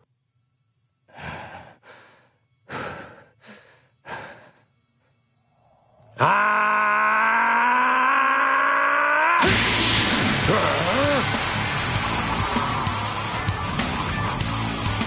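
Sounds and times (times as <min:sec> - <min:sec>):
man breathing heavily: 0:01.1 - 0:05.3.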